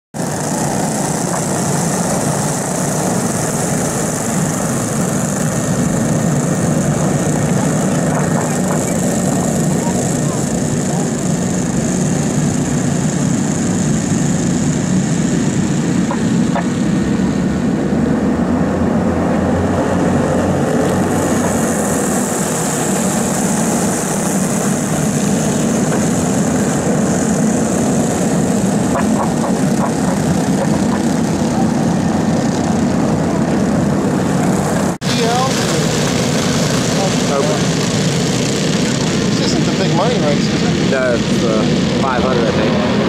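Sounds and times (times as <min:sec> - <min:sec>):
go-kart engines racing: 0:18.6 - 0:43.0.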